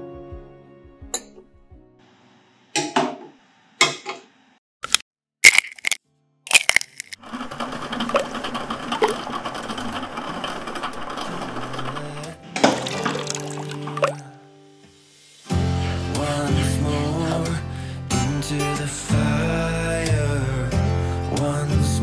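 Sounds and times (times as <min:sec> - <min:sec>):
egg cracking: 0:04.9 - 0:07.2, 0:12.8 - 0:14.2.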